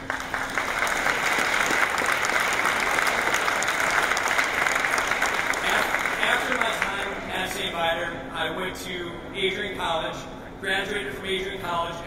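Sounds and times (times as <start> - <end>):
audience applauding: 0.0 - 7.2
man speaking: 5.6 - 12.0.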